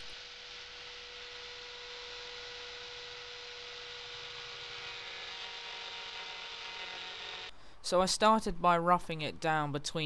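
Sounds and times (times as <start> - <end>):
hiss: 0.0 - 5.2
motor whine: 0.0 - 7.5.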